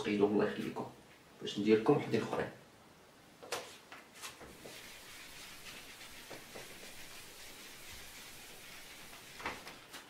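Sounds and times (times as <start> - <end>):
eraser rubbing whiteboard: 4.2 - 10.0.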